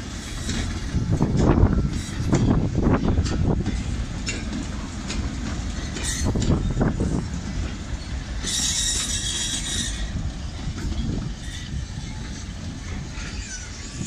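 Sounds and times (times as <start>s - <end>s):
freight train wheels rumbling: 0.0s - 14.0s
hiss: 8.4s - 10.6s.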